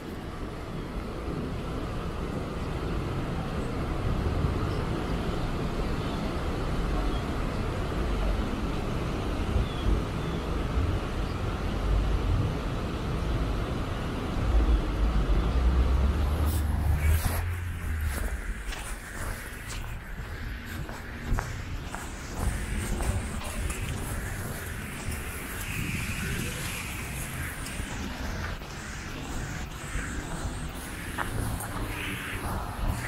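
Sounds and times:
rumble of passing vehicles: 0.2s - 33.0s
tyres hissing on wet road: 13.9s - 33.0s.

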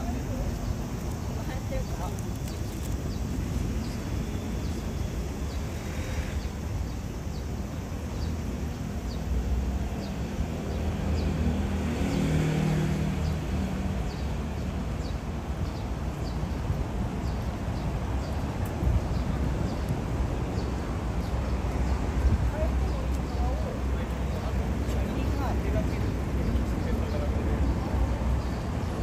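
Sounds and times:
street traffic rumble: 0.0s - 29.0s
vehicle engine passing: 10.6s - 14.1s.

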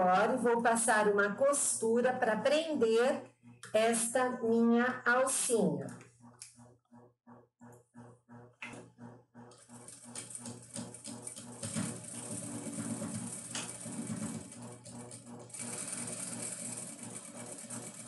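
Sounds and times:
sewing machine stitching: 9.4s - 18.0s.

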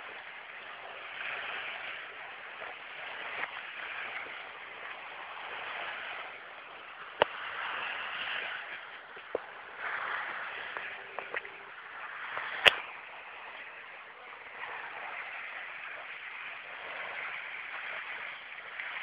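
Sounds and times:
steady outdoor hiss: 0.0s - 19.0s.

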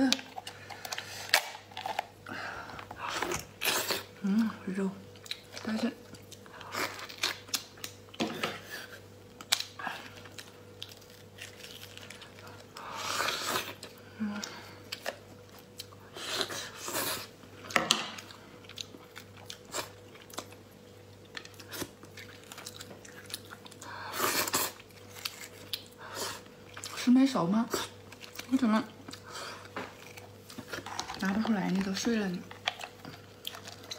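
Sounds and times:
lobster shell cracking: 0.1s - 2.2s
chewing and wet mouth sounds: 5.1s - 8.2s, 8.9s - 27.1s, 27.7s - 33.9s.

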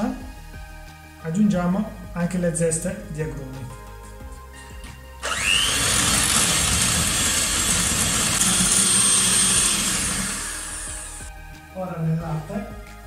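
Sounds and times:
electric hand mixer whining: 5.2s - 11.3s.

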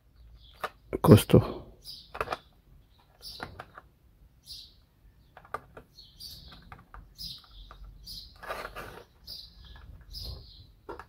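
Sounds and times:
bird chirping: 0.0s - 11.0s
plastic clicks and knocks: 5.3s - 8.0s, 10.8s - 11.0s
plastic scrape: 5.4s - 11.0s.

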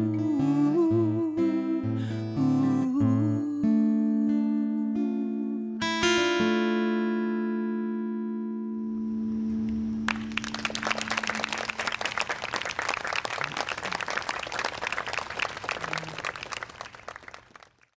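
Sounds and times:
acoustic guitar chord ringing: 5.1s - 12.0s
audience applauding: 10.0s - 18.0s.

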